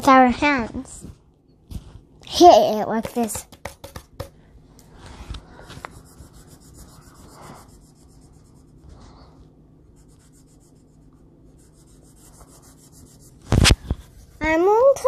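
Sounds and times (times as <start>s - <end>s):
pencil scratching on paper: 3.0s - 4.3s, 5.6s - 8.9s, 9.8s - 15.0s.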